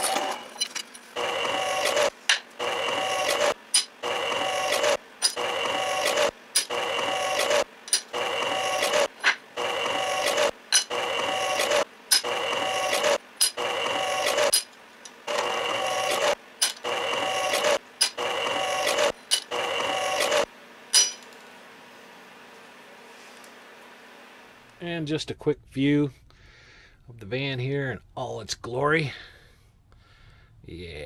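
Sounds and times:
drill press motor whine: 0.0s - 20.5s.

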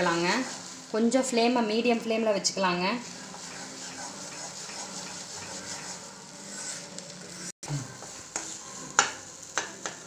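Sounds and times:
spatula scraping a pan: 0.0s - 0.9s, 3.0s - 10.0s
spatula clicking against a pan: 9.0s - 10.0s.

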